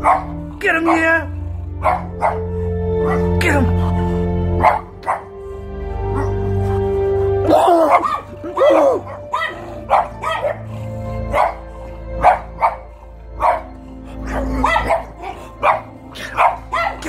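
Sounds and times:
puppy barking and yipping: 0:00.0 - 0:01.2, 0:01.8 - 0:02.4, 0:04.6 - 0:05.3, 0:07.9 - 0:17.0
background music: 0:00.0 - 0:17.0.

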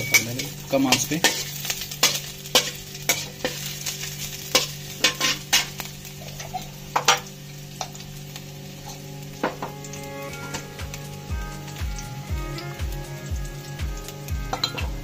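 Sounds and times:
metal spatula scraping a metal pan: 0:00.0 - 0:05.7
food sizzling in oil: 0:00.0 - 0:15.0.

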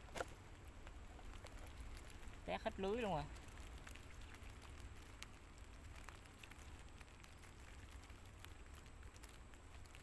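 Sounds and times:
mesh fish trap clicks and rustles: 0:00.0 - 0:10.0.

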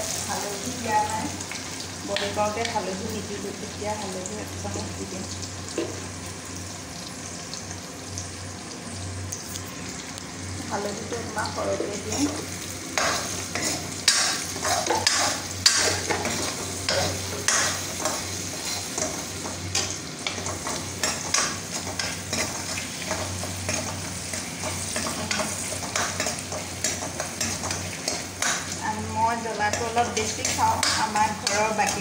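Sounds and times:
food sizzling in hot oil: 0:00.0 - 0:32.0
spoon stirring and scraping: 0:13.0 - 0:28.8.

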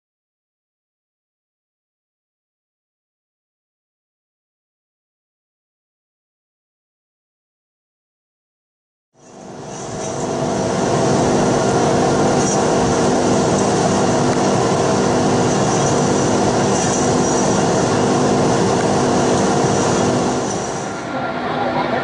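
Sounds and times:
machine hum with steady tones: 0:09.2 - 0:22.0
hiss: 0:15.3 - 0:18.0.

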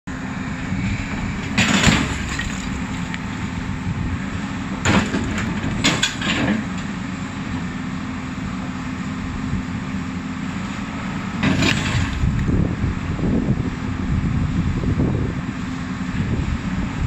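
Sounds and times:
excavator diesel engine running: 0:00.1 - 0:17.0.

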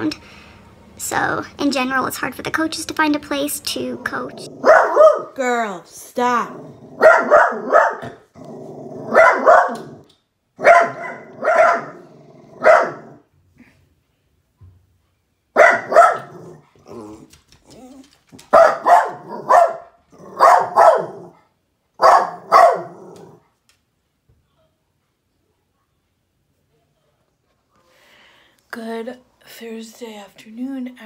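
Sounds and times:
small dog barking: 0:04.6 - 0:05.4, 0:07.0 - 0:08.2, 0:09.1 - 0:10.0, 0:10.6 - 0:12.0, 0:12.6 - 0:13.2, 0:15.6 - 0:16.6, 0:18.5 - 0:21.4, 0:22.0 - 0:23.2.

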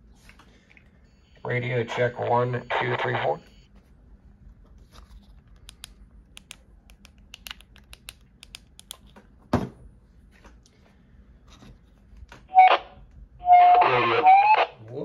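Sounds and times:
loud tone burst: 0:12.5 - 0:14.8.

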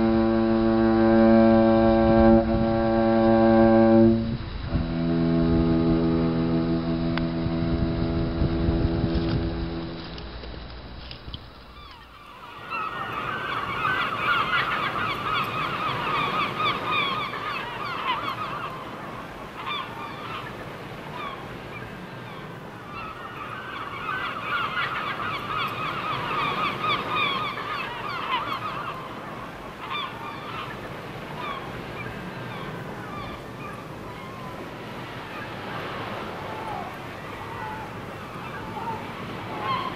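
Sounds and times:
steady background hiss: 0:00.0 - 0:39.9
flock of birds calling: 0:11.7 - 0:39.9.

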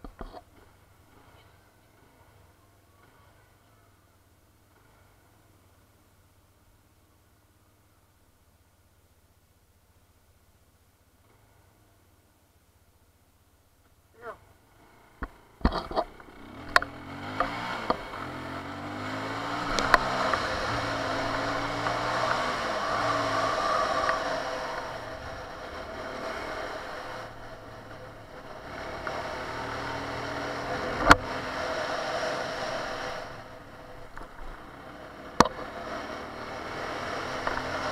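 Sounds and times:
motorcycle engine accelerating: 0:14.2 - 0:37.9.

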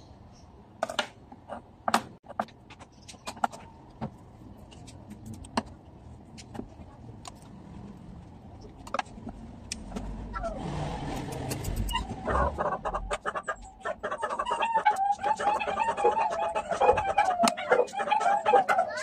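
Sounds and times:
chickens clucking and crowing: 0:11.8 - 0:19.0.

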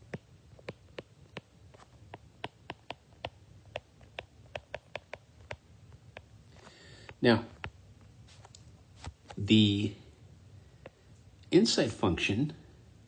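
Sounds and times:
stylus tapping on tablet: 0:00.0 - 0:06.3, 0:07.0 - 0:09.4.

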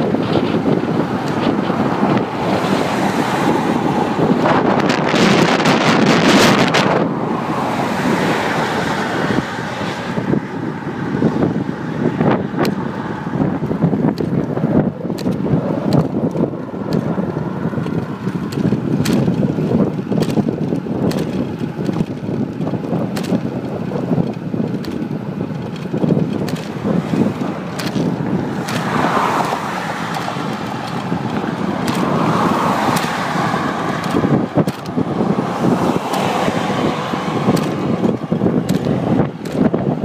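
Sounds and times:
wind buffeting microphone: 0:00.0 - 0:40.0
scattered clicks and rattles: 0:13.6 - 0:35.0, 0:35.7 - 0:40.0.

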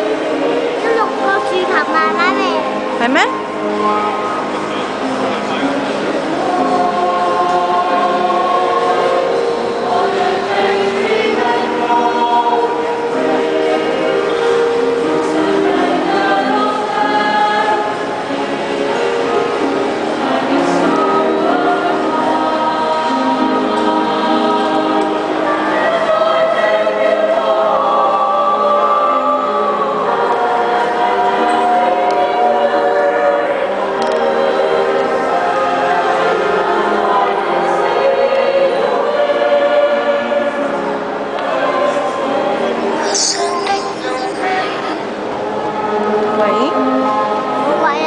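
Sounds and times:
choir singing: 0:00.0 - 0:48.0.

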